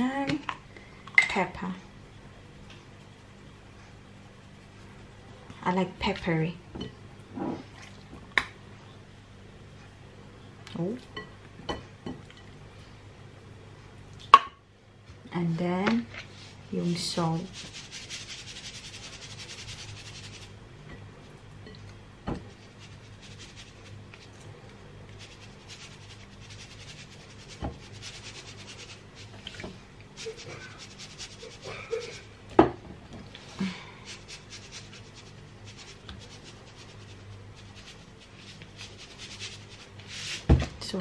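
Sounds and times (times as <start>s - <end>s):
hands rubbing meat: 17.3s - 20.5s, 22.5s - 24.4s, 25.0s - 32.3s, 34.0s - 40.5s.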